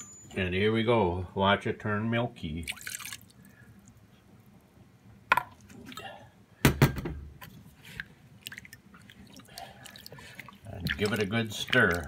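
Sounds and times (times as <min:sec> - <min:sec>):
faint liquid sloshing: 0:02.4 - 0:04.8, 0:05.4 - 0:06.4, 0:07.3 - 0:12.0.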